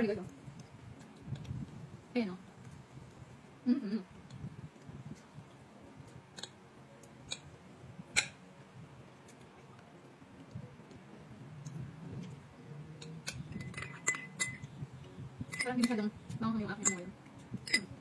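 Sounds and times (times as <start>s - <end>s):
cutlery clicking on plate: 7.2s - 7.5s, 8.1s - 8.4s, 16.8s - 17.9s.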